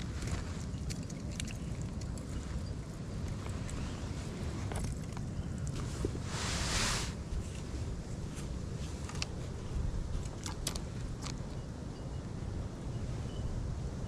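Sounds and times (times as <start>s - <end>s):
wind buffeting microphone: 0.0s - 14.0s
rush of hiss: 6.3s - 7.2s.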